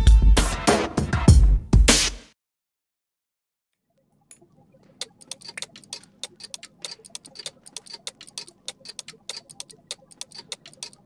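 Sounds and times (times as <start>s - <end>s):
rapid sharp clicks: 4.9s - 11.0s.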